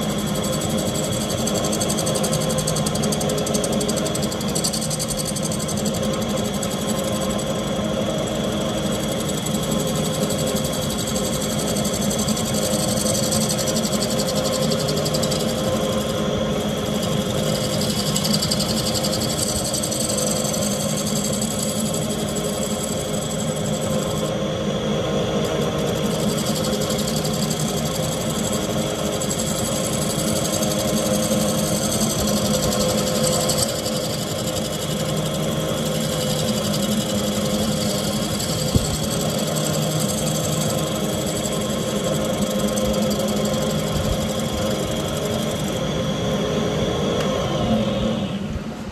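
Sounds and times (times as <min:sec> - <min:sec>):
wood lathe running: 0:00.0 - 0:24.4, 0:25.4 - 0:45.9.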